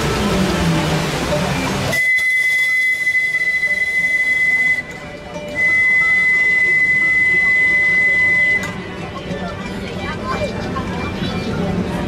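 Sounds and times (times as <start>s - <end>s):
steamboat whistle blasts: 1.9s - 8.8s.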